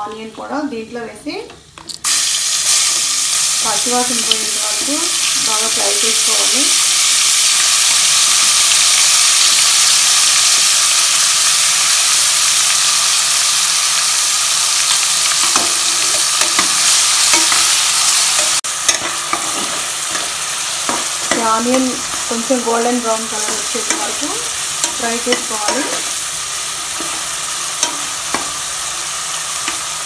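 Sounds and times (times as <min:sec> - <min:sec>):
onion sizzling in hot oil: 0:00.0 - 0:30.0
spatula scraping and tapping pan: 0:18.3 - 0:22.2.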